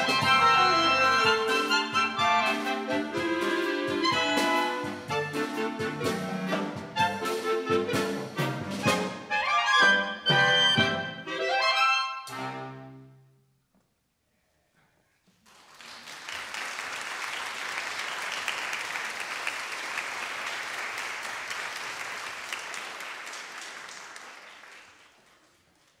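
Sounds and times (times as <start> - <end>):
audience applauding: 15.4 - 26.0.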